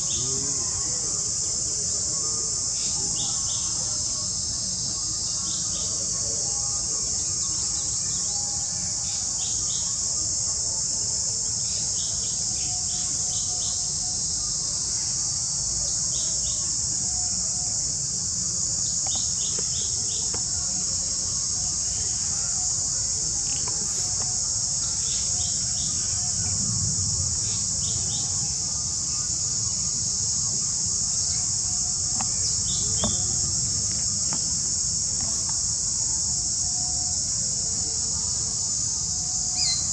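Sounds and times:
high insect chorus: 0:00.0 - 0:39.9
bird chirps: 0:39.6 - 0:39.9.

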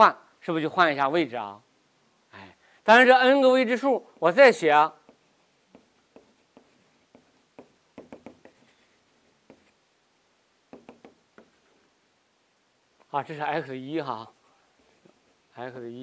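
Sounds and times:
chalk writing on a blackboard: 0:04.9 - 0:09.8, 0:10.7 - 0:11.9, 0:14.2 - 0:15.6.

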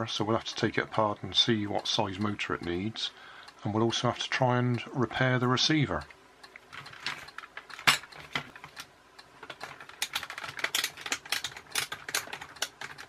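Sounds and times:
plastic toy clicks and taps: 0:06.7 - 0:13.0.

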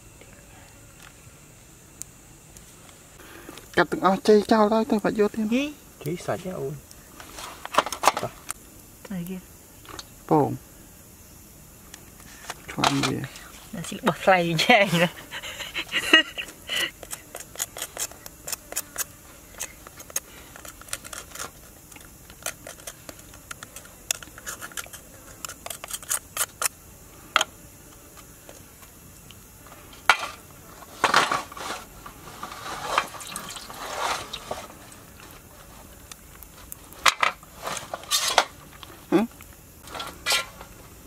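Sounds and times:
shell cracking and squelching: 0:16.9 - 0:26.8
knife cracking crab shell: 0:17.0 - 0:26.7.

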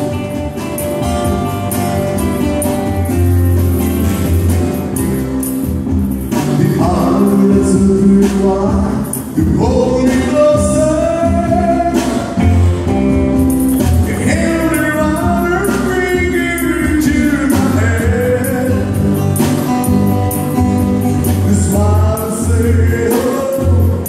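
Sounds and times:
acoustic bass guitar: 0:00.0 - 0:24.0
strummed acoustic guitars: 0:00.0 - 0:24.0
man singing: 0:06.3 - 0:12.7, 0:14.0 - 0:20.1, 0:21.0 - 0:24.0.

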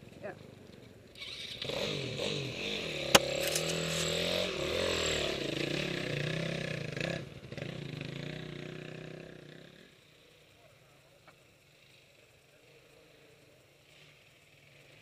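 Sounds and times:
dirt bike engine revving: 0:01.1 - 0:10.3.

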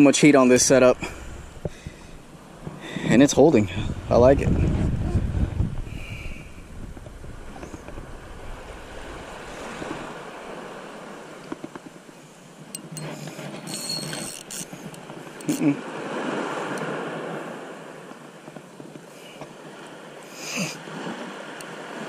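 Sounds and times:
small surf washing in: 0:00.0 - 0:11.5, 0:14.7 - 0:18.1
wind on microphone: 0:00.4 - 0:11.2.

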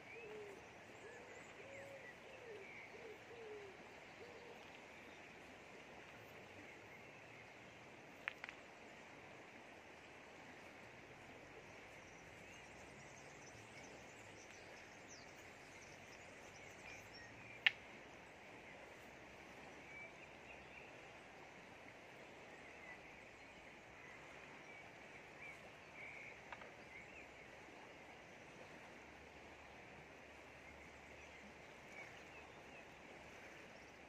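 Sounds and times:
river flowing: 0:00.0 - 0:34.0.

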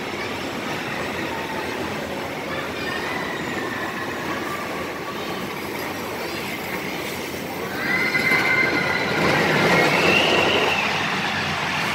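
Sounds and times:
roller coaster rolling rumble: 0:00.0 - 0:11.9
high wheel squeal: 0:02.8 - 0:11.5.

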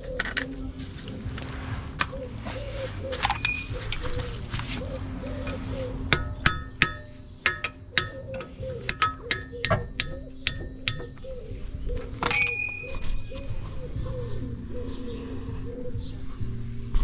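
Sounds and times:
background music: 0:00.0 - 0:17.0
metal clang: 0:03.2 - 0:04.2, 0:05.4 - 0:11.4, 0:12.2 - 0:13.2
spanner clinking on metal: 0:03.2 - 0:04.3, 0:05.4 - 0:11.4, 0:12.2 - 0:13.2.

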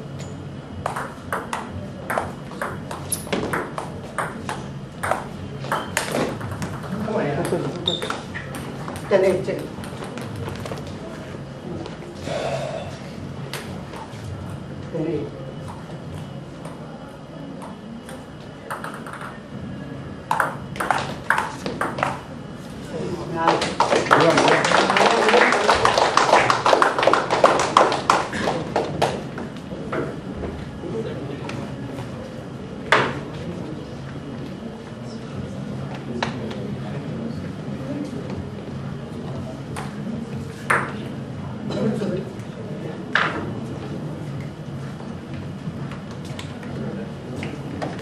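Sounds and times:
table tennis ball hits: 0:00.2 - 0:10.8, 0:17.6 - 0:19.5, 0:20.3 - 0:22.2, 0:40.7 - 0:41.0.

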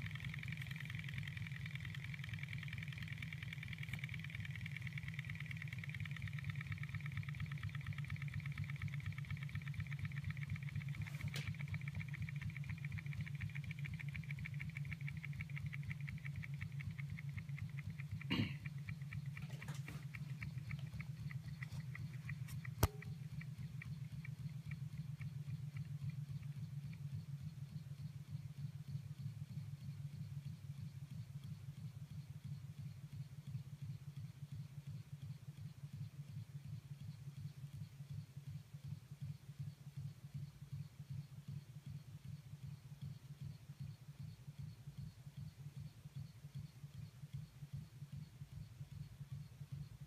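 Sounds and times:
model engine running rhythmically: 0:00.0 - 0:50.0
rapid light ticking: 0:00.0 - 0:50.0
sharp click: 0:19.7 - 0:23.9.

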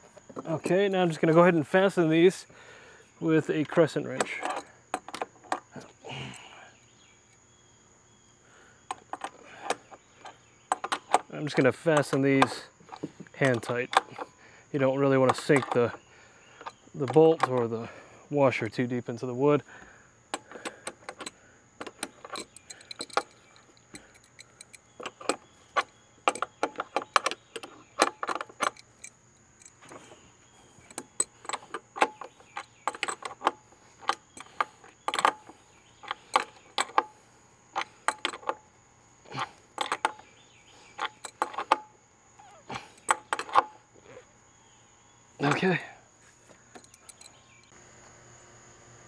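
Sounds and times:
wrench clinking on nuts: 0:15.2 - 0:16.0, 0:20.3 - 0:37.2, 0:37.8 - 0:38.6, 0:39.3 - 0:40.3, 0:41.0 - 0:43.8, 0:46.7 - 0:47.7.

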